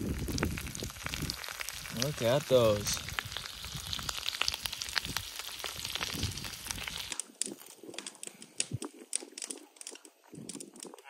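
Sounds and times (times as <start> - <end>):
food sizzling in a pot: 0.0 - 7.2
tortilla chips crinkling: 0.1 - 11.0.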